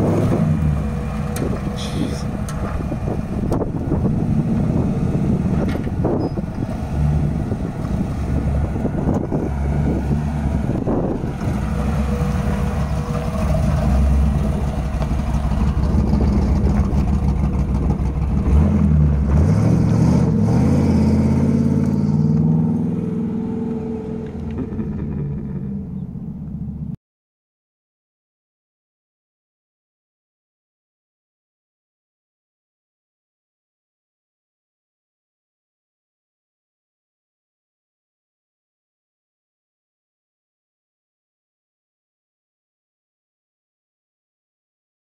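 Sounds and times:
car engine revving: 0.0s - 27.0s.

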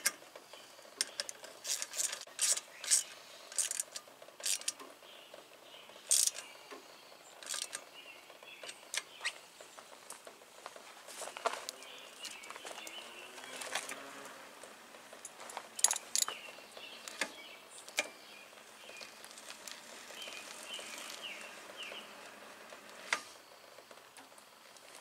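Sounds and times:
faint bird chirps: 5.0s - 9.8s
metallic clinks and knocks: 15.1s - 16.4s.

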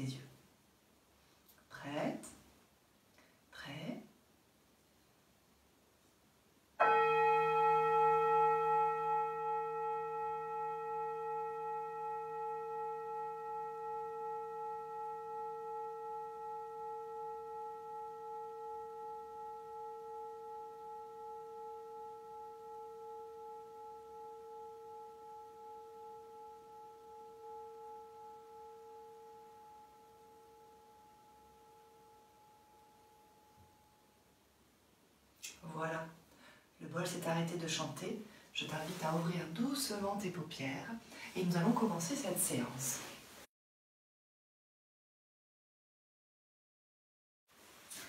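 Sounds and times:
singing bowl struck and ringing: 6.8s - 34.3s.

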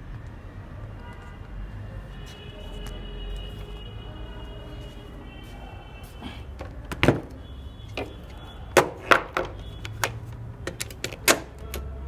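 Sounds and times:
hard objects clicking and knocking: 6.6s - 12.0s.

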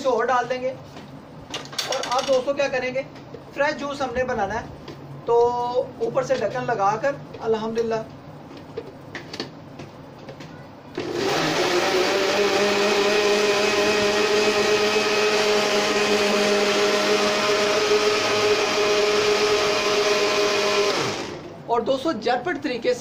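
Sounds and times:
blender motor running: 11.0s - 21.5s.

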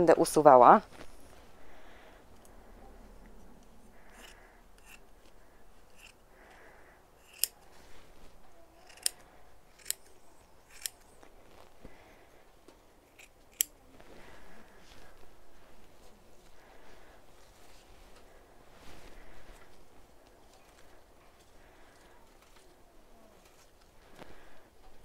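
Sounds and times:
wool mat rustling: 0.7s - 2.0s, 11.0s - 13.0s, 13.8s - 25.0s
scissors snipping: 4.1s - 5.0s, 7.2s - 7.6s, 8.8s - 9.2s, 9.8s - 11.0s, 13.1s - 13.8s.

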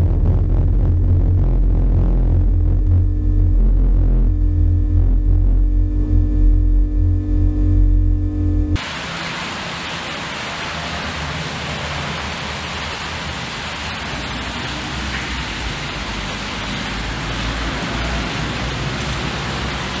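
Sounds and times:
electronic droning noise: 0.0s - 9.0s
water rushing through drain: 8.8s - 20.0s.

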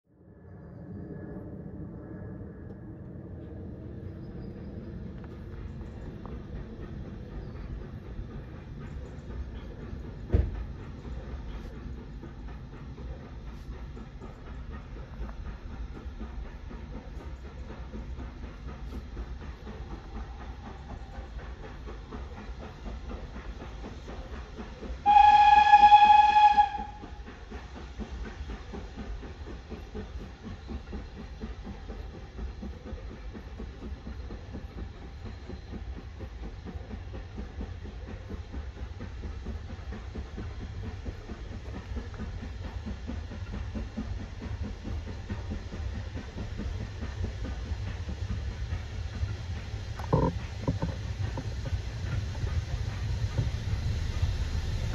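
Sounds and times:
steam train rumble: 0.3s - 54.9s
steam locomotive whistle: 25.0s - 27.2s.

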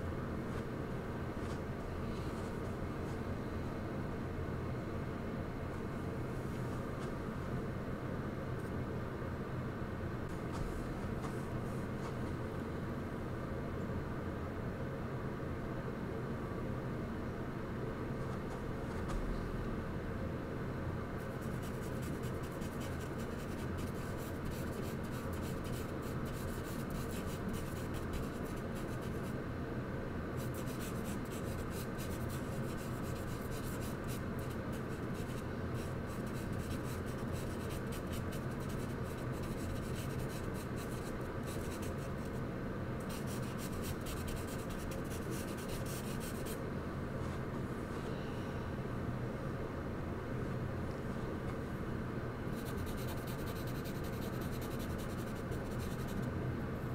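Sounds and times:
steady low hum: 0.0s - 56.9s
charcoal scratching on paper: 21.3s - 29.2s, 30.4s - 42.3s, 43.1s - 46.6s, 52.6s - 56.2s.

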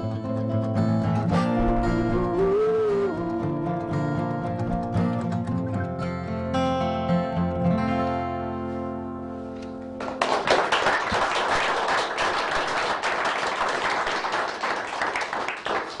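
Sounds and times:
acoustic guitar chord ringing: 1.0s - 10.0s
audience applause: 10.0s - 16.0s.

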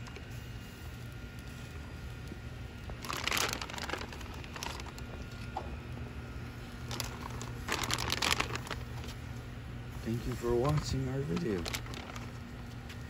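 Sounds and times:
plastic bag crinkling: 2.9s - 5.5s, 6.8s - 9.2s, 10.2s - 13.0s.

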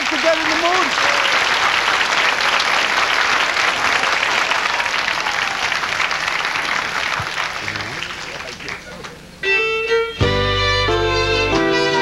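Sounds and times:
audience applauding: 0.0s - 9.2s.

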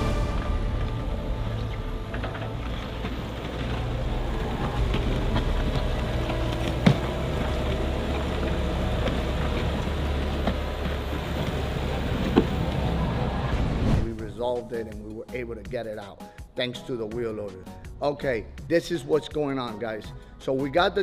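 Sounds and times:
heavy diesel engines running: 0.0s - 13.8s.

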